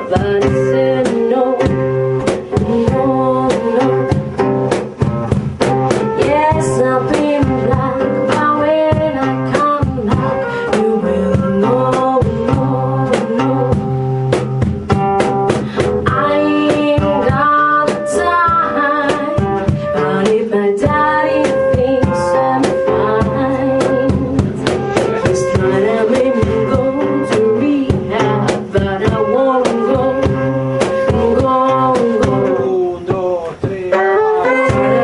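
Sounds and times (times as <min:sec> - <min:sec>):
woman singing: 0:00.0 - 0:04.5, 0:05.9 - 0:14.4, 0:15.5 - 0:33.2, 0:34.4 - 0:35.0
drums: 0:00.0 - 0:35.0
guitar: 0:00.0 - 0:35.0
flute playing held notes: 0:16.4 - 0:27.9, 0:29.0 - 0:32.8, 0:33.9 - 0:35.0.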